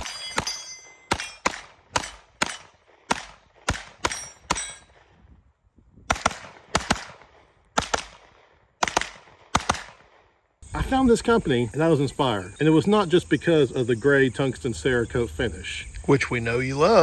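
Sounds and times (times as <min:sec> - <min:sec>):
pistol shots: 0:00.0 - 0:05.1, 0:06.1 - 0:10.4.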